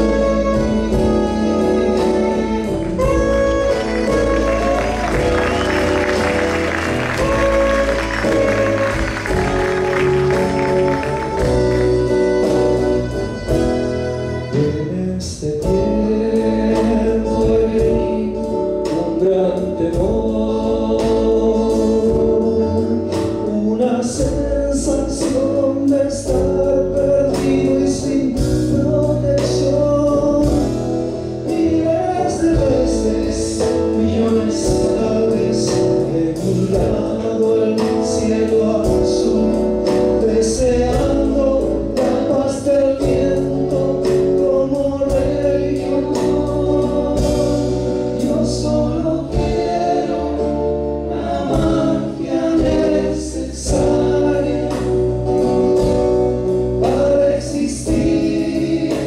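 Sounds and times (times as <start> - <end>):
acoustic guitar: 0.0 - 59.0
bass guitar: 0.0 - 59.0
drum kit with cymbals: 0.0 - 59.0
voices singing together: 4.1 - 11.8, 15.6 - 28.4, 31.4 - 56.0, 56.8 - 59.0.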